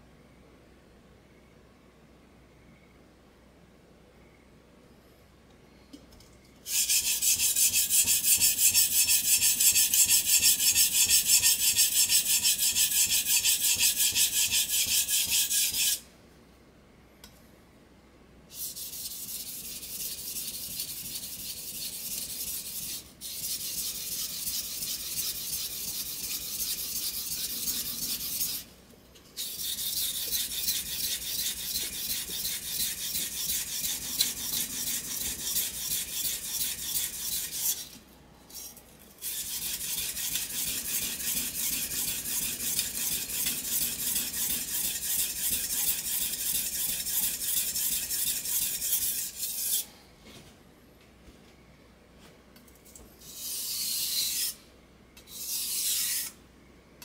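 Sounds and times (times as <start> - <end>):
knife scraping on whetstone: 6.7 - 16.0, 18.5 - 28.7, 29.3 - 49.9, 53.2 - 54.6, 55.2 - 56.4.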